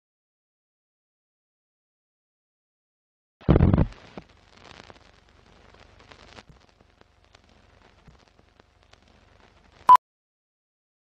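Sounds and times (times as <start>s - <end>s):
faint film crackle with pops: 3.4s - 10.0s.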